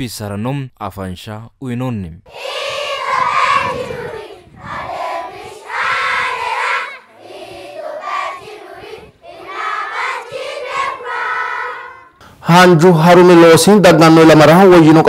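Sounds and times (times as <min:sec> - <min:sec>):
children singing in chorus: 0:02.3 - 0:12.2.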